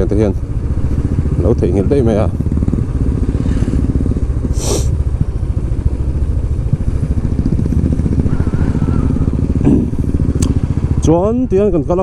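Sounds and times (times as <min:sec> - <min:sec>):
motorcycles riding by: 0:00.0 - 0:12.0
brief hiss: 0:04.6 - 0:04.9.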